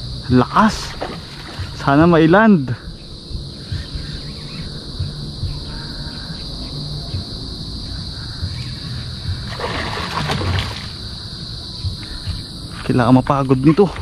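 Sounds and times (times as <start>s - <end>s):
crickets chirring: 0.0s - 14.0s
fish splashing and thrashing: 0.8s - 2.0s, 9.4s - 11.2s.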